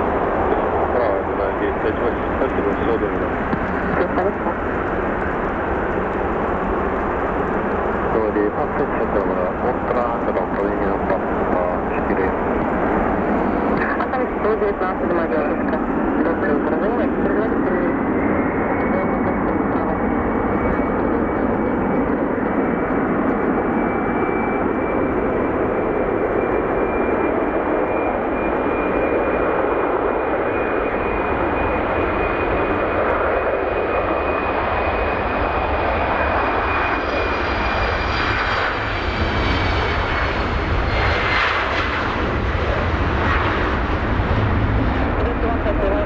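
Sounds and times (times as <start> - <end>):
jet engines at takeoff thrust: 0.0 - 46.0.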